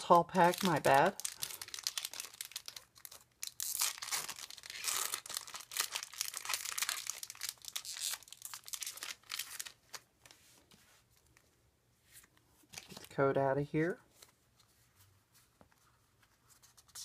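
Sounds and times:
foil wrapper crinkling and tearing: 0:00.0 - 0:10.0.

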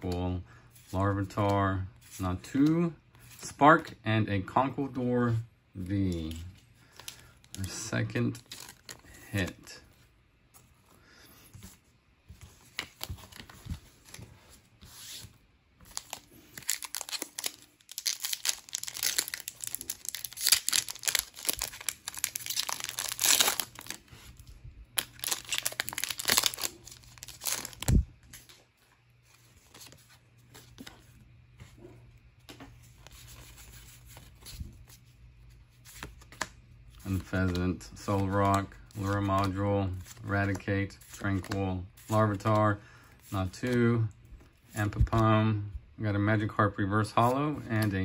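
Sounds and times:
handling of cards: 0:05.8 - 0:45.3
foil wrapper tearing and crinkling: 0:15.9 - 0:24.1, 0:25.0 - 0:28.0.

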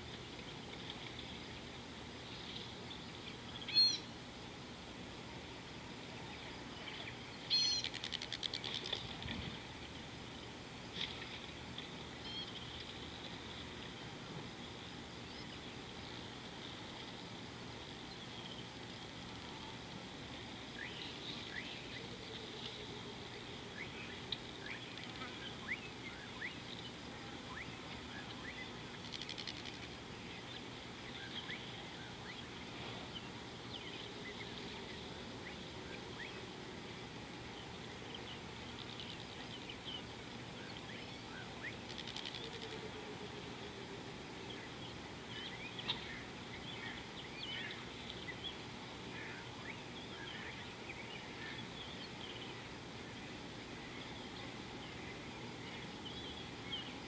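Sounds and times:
background hiss: 0:00.0 - 0:57.0
bird chirps and calls: 0:07.5 - 0:08.2.

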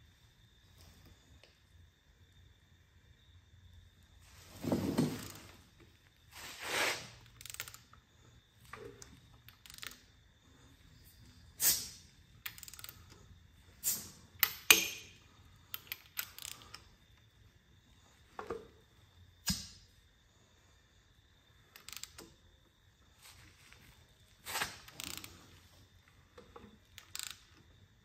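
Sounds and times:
hands handling parts clicking: 0:11.8 - 0:13.2, 0:14.4 - 0:16.9.

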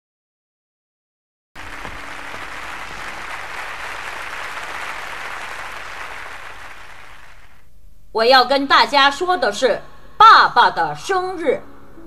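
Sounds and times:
audience applauding: 0:01.6 - 0:07.6.

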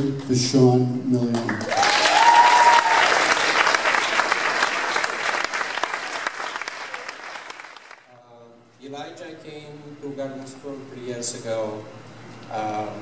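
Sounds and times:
audience applauding: 0:01.4 - 0:08.1
high whoop: 0:01.7 - 0:03.6.

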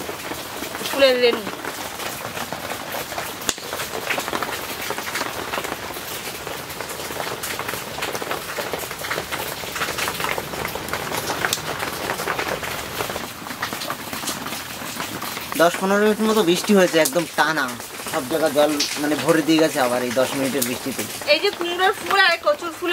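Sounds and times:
steady rain falling: 0:00.0 - 0:22.9.

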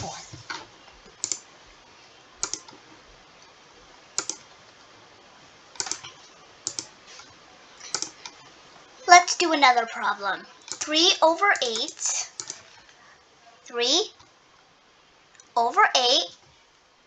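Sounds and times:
computer mouse clicks: 0:01.0 - 0:01.5, 0:02.4 - 0:02.8, 0:04.2 - 0:04.5, 0:05.8 - 0:08.4, 0:10.6 - 0:10.9, 0:11.6 - 0:12.7.

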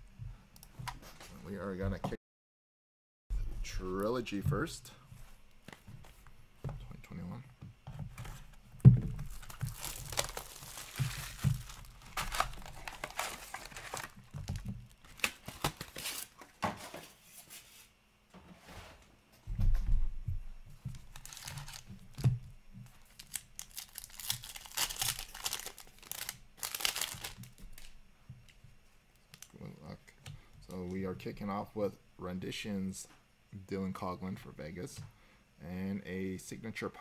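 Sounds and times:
plastic wrap tearing and crinkling: 0:09.1 - 0:16.4, 0:20.9 - 0:22.3, 0:23.0 - 0:28.0.

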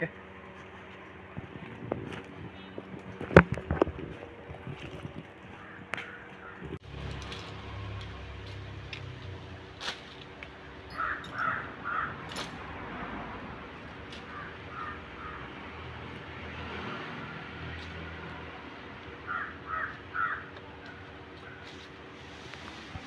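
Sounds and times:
steady low hum: 0:00.0 - 0:16.4
crow cawing: 0:05.5 - 0:06.7, 0:10.9 - 0:12.2, 0:14.3 - 0:15.6, 0:19.2 - 0:21.6.

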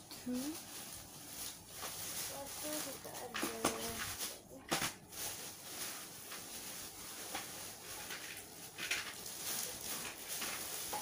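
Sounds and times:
faint rustling: 0:00.0 - 0:11.0
light knocks of handled items: 0:03.1 - 0:05.0.

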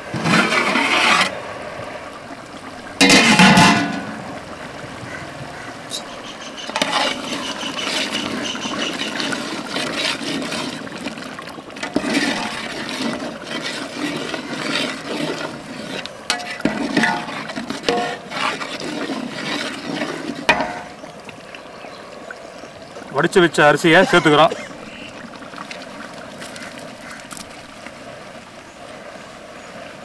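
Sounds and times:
ladle stirring thick gravy: 0:00.2 - 0:01.4, 0:05.9 - 0:21.7
ladle clanking against pot: 0:03.0 - 0:04.1, 0:16.3 - 0:18.6, 0:20.5 - 0:21.0.

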